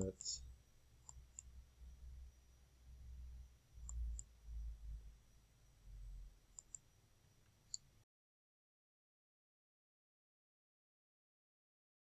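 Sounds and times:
computer mouse clicks: 1.0s - 1.6s, 3.8s - 4.3s, 6.5s - 6.9s, 7.7s - 7.9s.

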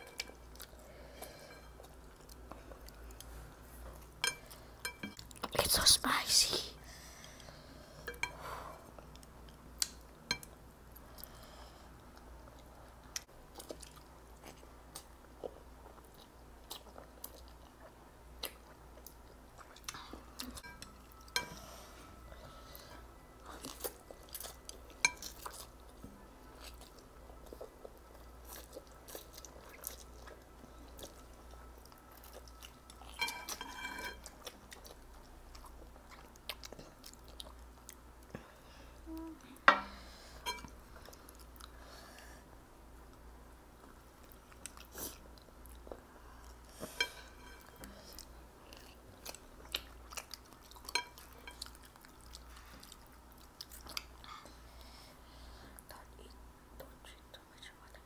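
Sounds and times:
chewing noodles: 23.4s - 38.0s.

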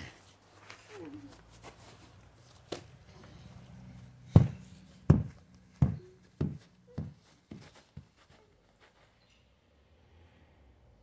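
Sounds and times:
football bouncing: 4.3s - 7.7s.

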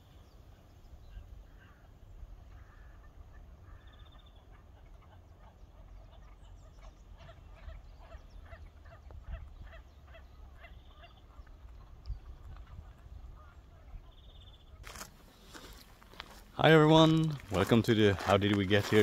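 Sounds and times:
geese honking: 1.5s - 14.3s
wind rumble on microphone: 6.8s - 14.7s.

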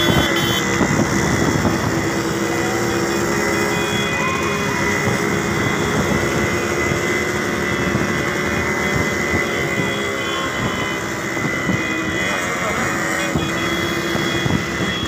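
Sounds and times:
wind on microphone: 0.0s - 2.5s, 13.3s - 15.0s
motorcycle engines running: 0.0s - 15.0s.

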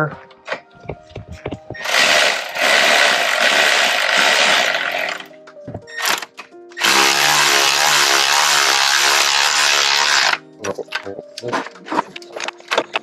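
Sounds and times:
power tool driving bolts: 1.8s - 5.3s, 6.0s - 10.4s.

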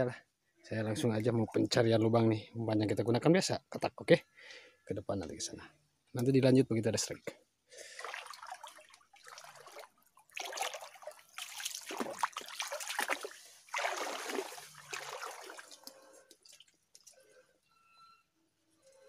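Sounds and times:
person wading through water: 7.8s - 17.3s
small water drips: 7.8s - 17.4s.

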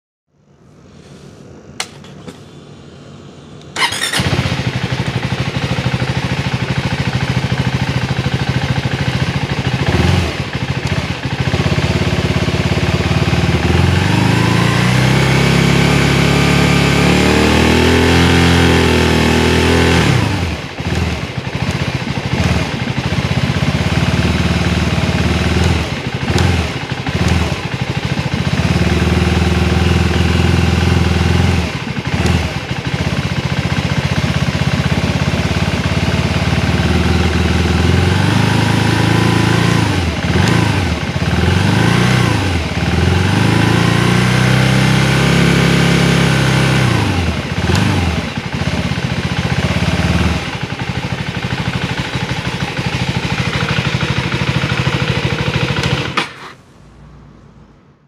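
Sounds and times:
motorcycle engine idling and revving: 1.8s - 58.0s.

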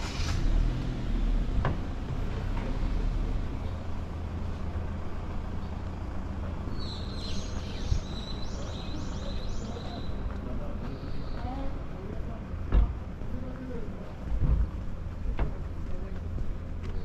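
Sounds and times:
low outdoor rumble: 0.0s - 17.0s
bird chirping: 6.7s - 11.8s.

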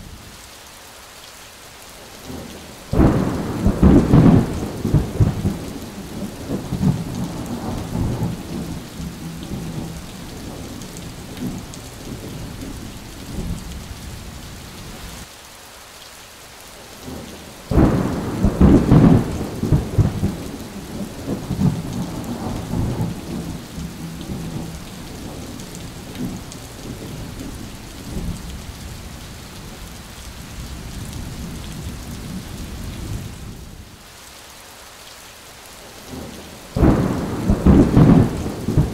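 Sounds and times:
rain pouring: 0.0s - 38.9s
thunder rumbling: 2.3s - 14.4s, 17.0s - 29.0s, 36.1s - 38.9s.

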